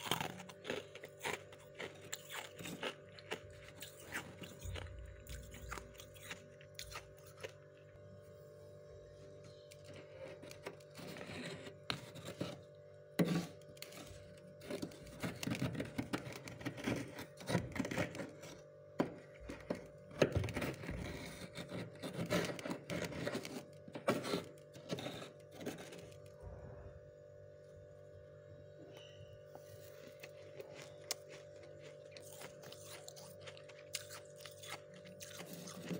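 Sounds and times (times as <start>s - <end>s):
fingers crunching frost: 0.0s - 7.9s, 29.7s - 35.9s
steady low hum: 0.0s - 35.9s.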